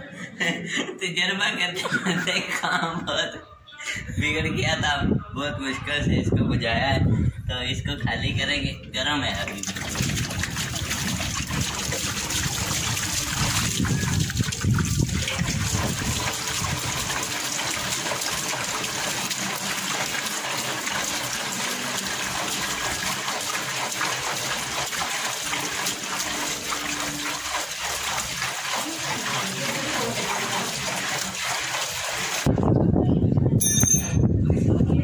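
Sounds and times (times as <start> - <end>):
water splashing onto concrete: 9.4 - 32.6.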